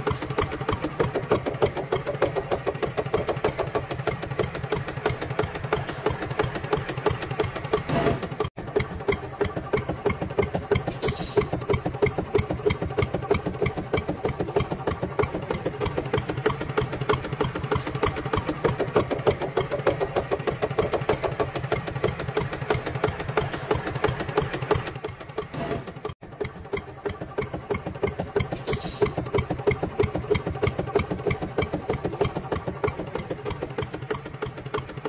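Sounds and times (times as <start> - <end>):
model tractor engine chugging: 0.0 - 35.0.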